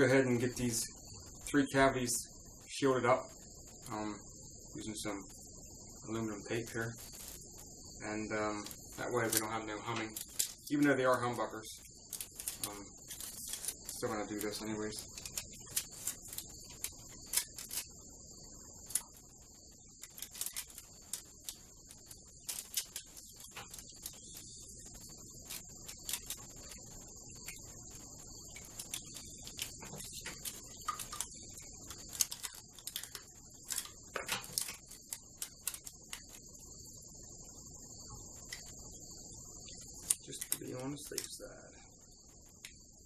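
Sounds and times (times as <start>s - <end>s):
faint high-pitched whine: 0.0s - 43.0s
foil tape crinkling: 7.0s - 7.5s, 8.6s - 10.8s, 12.1s - 18.0s, 18.8s - 19.3s, 20.0s - 36.4s.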